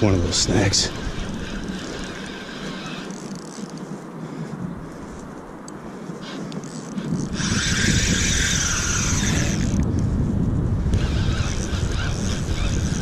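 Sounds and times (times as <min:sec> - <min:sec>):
wind rumbling on microphone: 0:00.0 - 0:13.0
spinning reel winding: 0:00.3 - 0:03.8, 0:06.2 - 0:09.8, 0:10.9 - 0:13.0.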